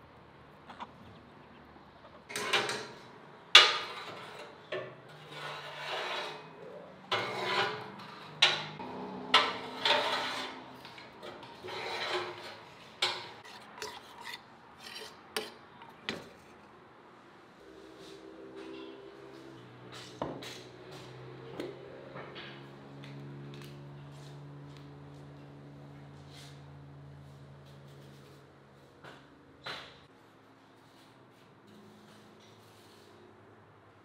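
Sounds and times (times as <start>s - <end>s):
wood scraping on steel: 2.3s - 16.8s.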